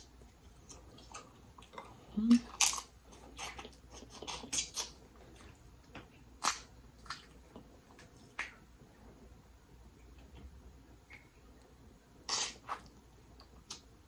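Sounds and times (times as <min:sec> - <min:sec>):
chewing: 0:00.2 - 0:08.6
lip smacks and clicks: 0:12.3 - 0:13.9.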